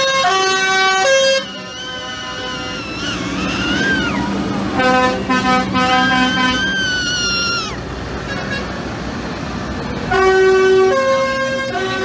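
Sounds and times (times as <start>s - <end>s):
loud air horn chord: 0.0s - 3.8s, 4.7s - 6.7s, 10.1s - 12.0s
tractor horn toots: 0.0s - 3.8s, 4.7s - 6.8s, 8.2s - 8.8s, 10.1s - 12.0s
diesel tractor engines rumbling: 0.0s - 12.0s
horn tone sliding down: 0.2s - 7.0s.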